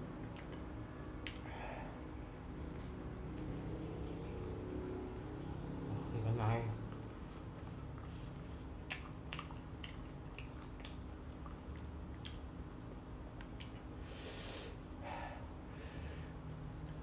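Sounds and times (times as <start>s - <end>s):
wet chewing and lip smacks: 0.0s - 1.5s, 2.6s - 4.4s, 6.7s - 14.0s
sharp sniffing breaths: 14.0s - 16.4s.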